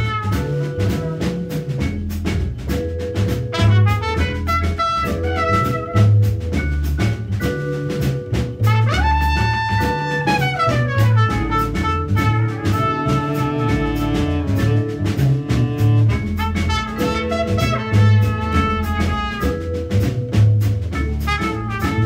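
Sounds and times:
trumpet melody: 0.0 - 1.9, 3.4 - 6.6, 8.6 - 22.0
drum kit cymbals: 0.0 - 22.0
upright double bass: 0.0 - 22.0.

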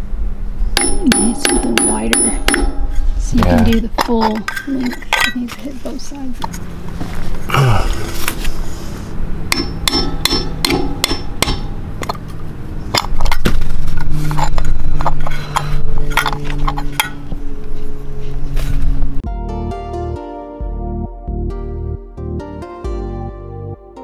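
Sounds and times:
steady low hum: 0.0 - 19.2
hammer tapping metal: 0.8 - 3.0, 9.5 - 12.2.

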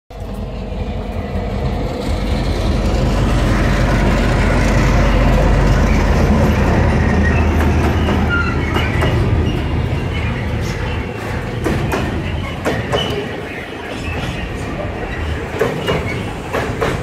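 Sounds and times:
diesel locomotive passing: 0.1 - 17.0
short high squeaks: 5.8 - 11.2.

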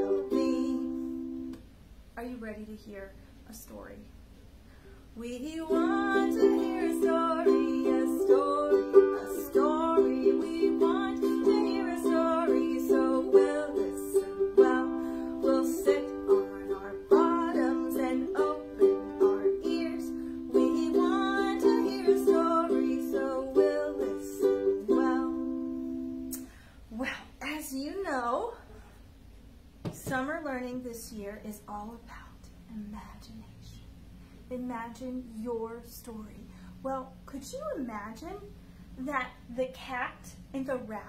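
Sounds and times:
woman singing: 0.0 - 1.4, 5.2 - 28.6
ukulele strumming: 0.0 - 1.6, 5.4 - 26.6.

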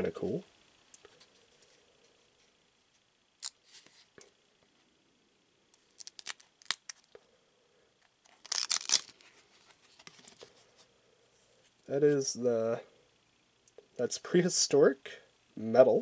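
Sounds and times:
cards rustling: 5.8 - 7.1, 8.1 - 10.8
trading cards scraping and snapping: 5.8 - 7.1, 8.0 - 10.5.

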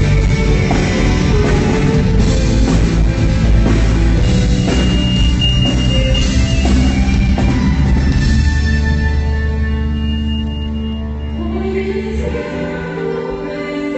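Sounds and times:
drum kit: 0.0 - 10.9
electric guitar: 0.0 - 13.8.

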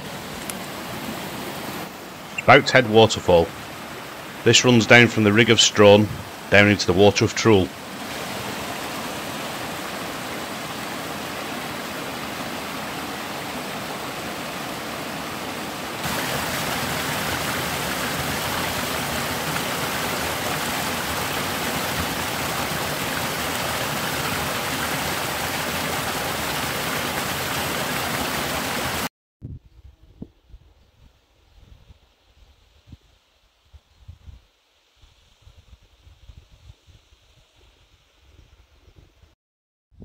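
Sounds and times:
waterfall splashing over rocks: 0.0 - 29.1.

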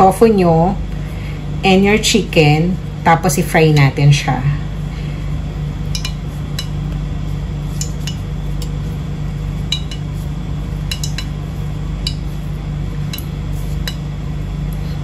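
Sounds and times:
steady low hum: 0.0 - 15.0
clinks against ceramic bowl: 6.0 - 6.8, 10.9 - 11.3.

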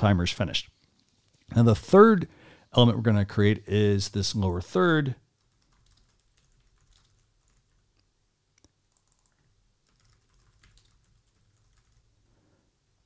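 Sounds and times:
typing on keyboard: 5.4 - 7.9, 8.9 - 12.2.

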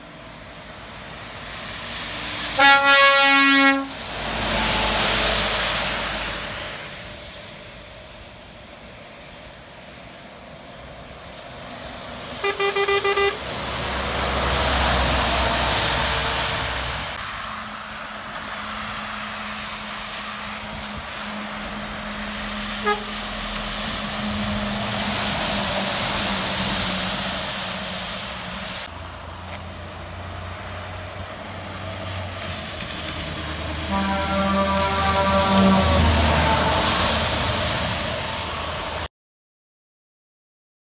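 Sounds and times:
engine hum: 0.0 - 39.1
tyres hissing on wet road: 0.0 - 39.1
vehicle horn tooting: 2.6 - 4.0, 12.4 - 13.5, 22.8 - 23.3, 33.8 - 36.8.

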